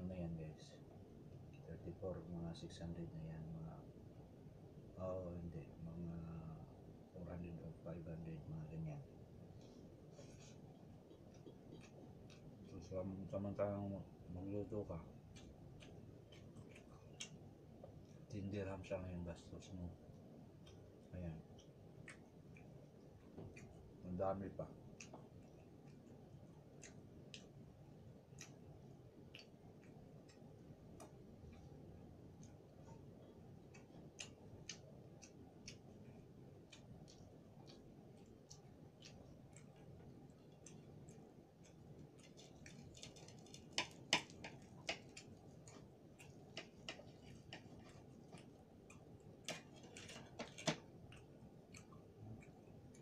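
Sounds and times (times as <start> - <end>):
low room hum: 0.0 - 53.0
mouth chewing: 9.6 - 12.9, 15.1 - 18.3, 20.6 - 24.0, 24.6 - 27.6, 28.2 - 53.0
fingers clicking on a ceramic plate: 40.6 - 53.0
pork skin crackling under knife: 42.2 - 45.4.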